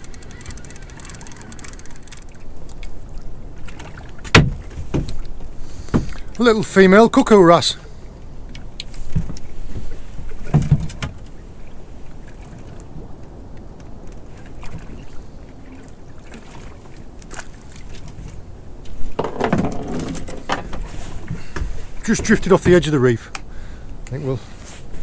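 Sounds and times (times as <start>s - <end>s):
fishing tackle clicks and knocks: 0.0s - 3.0s, 10.4s - 11.4s, 17.2s - 24.2s
water lapping against boat hull: 0.0s - 6.7s, 7.7s - 25.0s.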